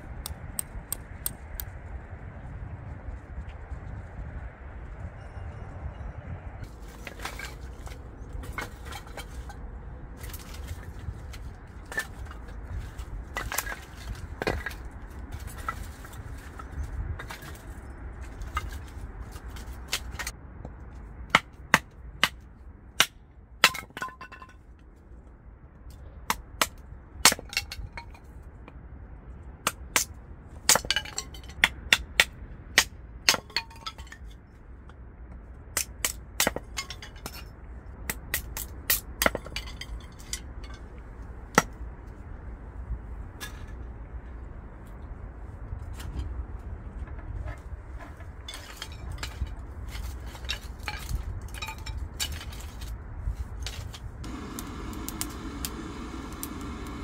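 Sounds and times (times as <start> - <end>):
hatchet chopping wood: 26.3 - 27.6
split sticks clattering: 48.0 - 53.0.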